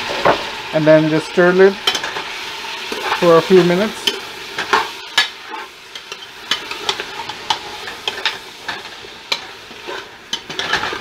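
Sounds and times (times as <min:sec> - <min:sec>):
meat sizzling in hot oil: 0:00.0 - 0:11.0.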